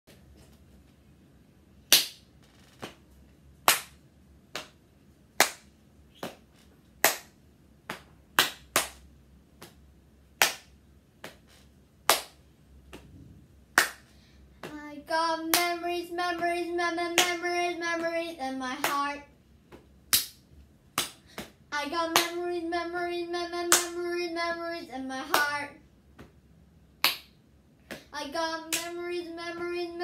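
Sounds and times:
child clapping: 7.0 - 7.3, 7.9 - 9.0, 13.8 - 14.8, 15.4 - 16.5, 17.1 - 19.2, 21.0 - 22.6, 23.6 - 24.0, 25.2 - 25.6, 27.9 - 29.8.

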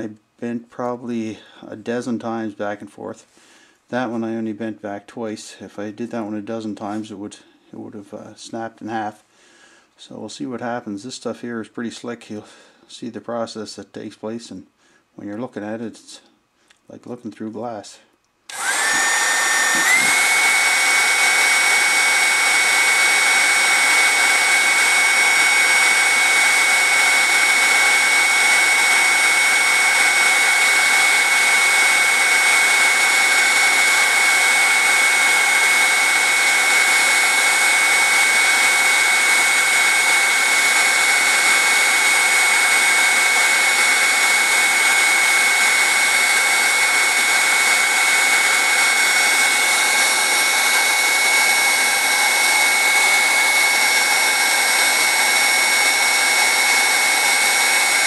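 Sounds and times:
rush of blown air: 18.5 - 20.8
heat gun fan whining: 18.5 - 58.0.

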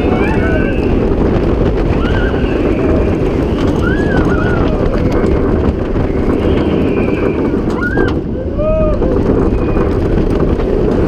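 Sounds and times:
people screaming: 0.0 - 1.1, 1.8 - 5.4, 6.6 - 9.9
roller coaster rumbling on track: 0.0 - 11.0
wind buffeting microphone: 0.0 - 11.0.

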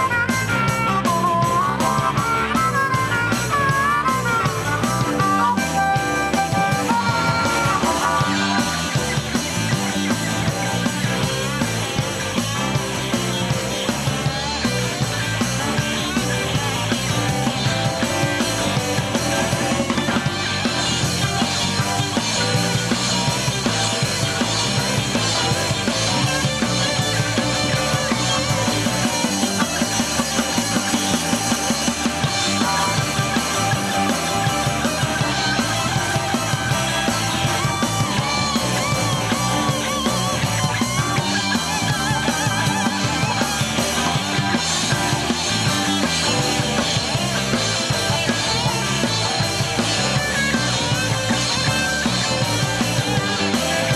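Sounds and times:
harmonica: 0.0 - 11.8
bass guitar: 0.0 - 53.9
drum kit: 0.0 - 53.9
electric guitar: 0.0 - 53.9
keyboard: 0.0 - 53.9.

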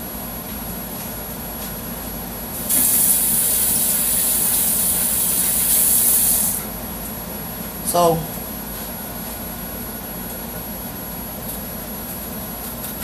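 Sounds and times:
water running from faucet: 2.7 - 6.5.

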